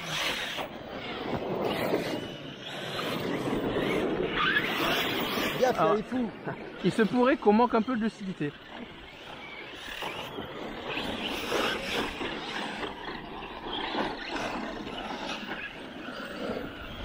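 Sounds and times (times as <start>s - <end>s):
electric motors whining: 0.0s - 17.0s.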